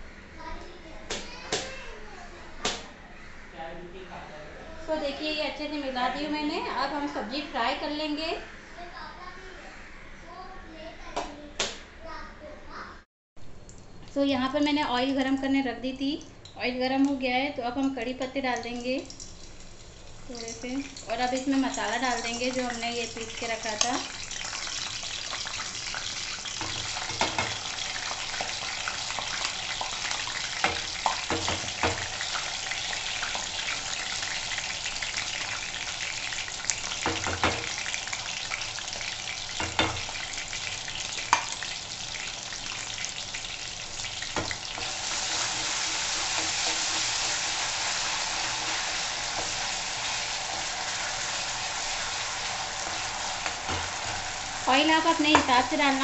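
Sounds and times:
paste sizzling in hot oil: 17.9 - 56.0.

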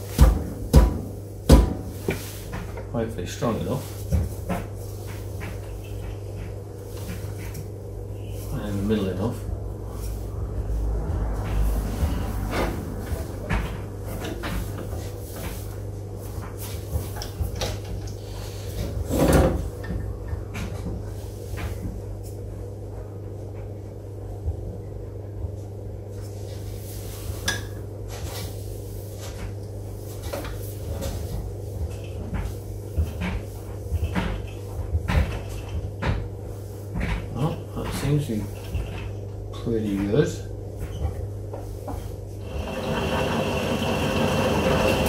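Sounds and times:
machine hum: 2.7 - 20.8, 42.3 - 45.0
wooden bowl knocking on lathe: 42.4 - 45.0.

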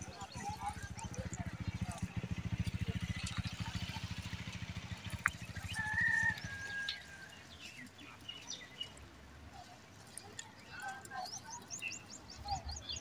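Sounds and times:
low fast pulsing throb: 0.0 - 5.8
birds chirping: 0.0 - 13.0.

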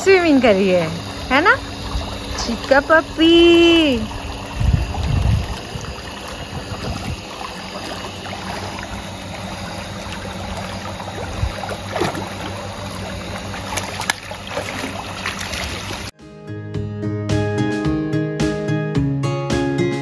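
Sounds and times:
dog splashing in water: 4.1 - 16.1.

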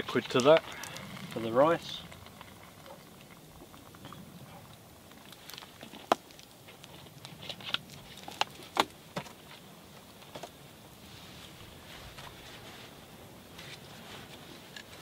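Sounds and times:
fire popping sharply: 0.0 - 9.2
campfire crackling: 0.0 - 15.0.

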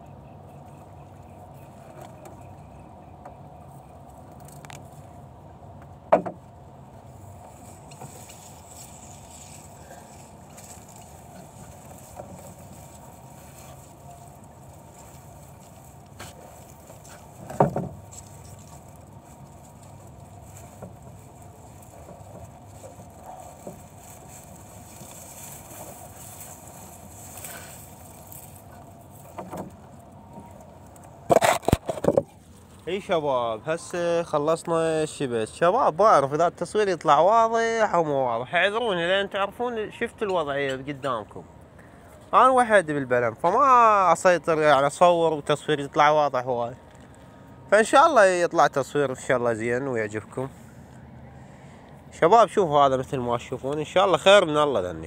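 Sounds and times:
low background hum: 0.0 - 55.0
knocks and bumps in boat: 6.1 - 6.5, 16.2 - 18.2, 29.2 - 30.6.

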